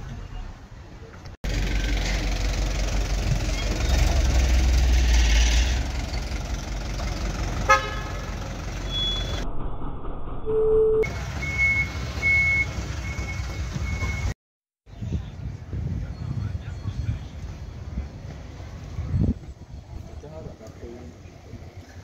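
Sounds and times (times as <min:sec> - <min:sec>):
truck engine running: 0:01.4 - 0:10.4
car horn toot: 0:07.6 - 0:09.4
short high beeps: 0:10.4 - 0:14.3.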